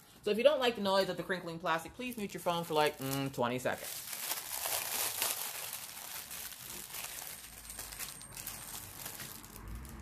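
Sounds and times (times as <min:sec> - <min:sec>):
plastic bag crinkling: 0:02.1 - 0:10.0.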